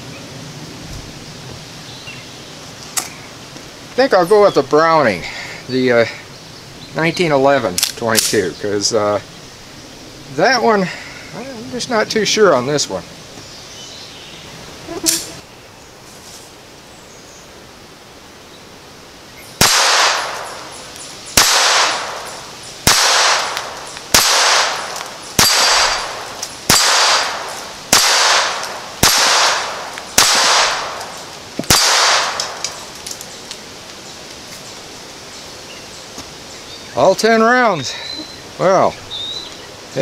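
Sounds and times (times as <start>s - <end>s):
pistol shots: 19.6s - 20.7s, 21.3s - 32.9s.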